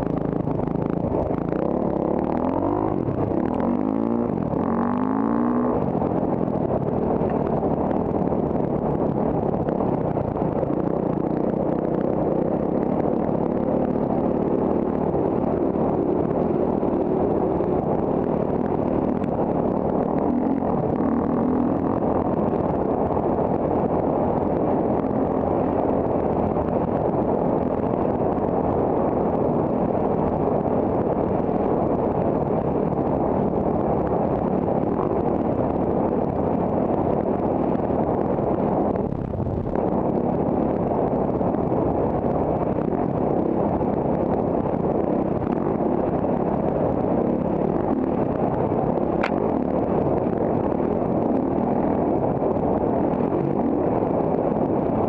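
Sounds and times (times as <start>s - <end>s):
dirt bike engine running: 0.0s - 55.0s
sharp tick: 49.2s - 49.4s.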